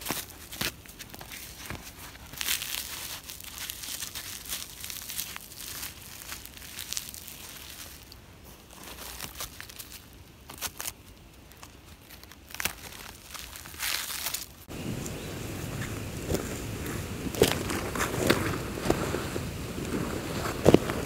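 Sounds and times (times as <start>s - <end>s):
bark tearing and snapping: 0.0s - 14.7s.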